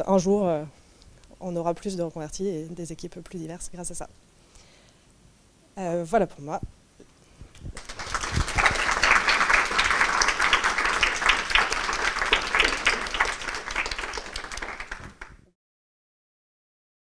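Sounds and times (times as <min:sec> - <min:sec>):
audience applauding: 0:07.8 - 0:15.4.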